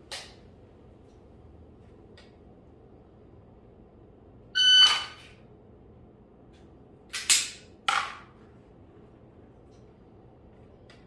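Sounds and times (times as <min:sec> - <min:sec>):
shot timer beep: 0:04.6 - 0:05.2.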